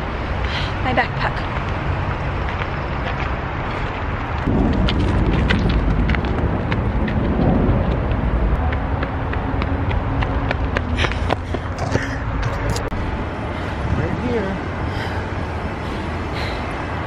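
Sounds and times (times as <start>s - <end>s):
low outdoor rumble: 0.0s - 17.0s
running footsteps on gravel: 1.4s - 12.8s.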